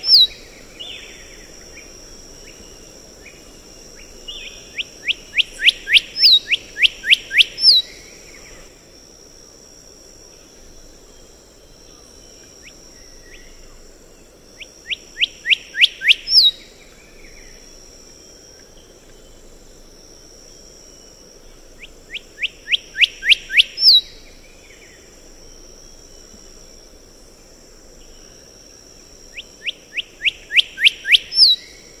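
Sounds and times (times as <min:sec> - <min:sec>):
steady high buzz: 0:00.0 - 0:32.0
bird whistling song: 0:04.3 - 0:08.0, 0:15.2 - 0:16.7, 0:22.1 - 0:24.2, 0:29.4 - 0:31.8.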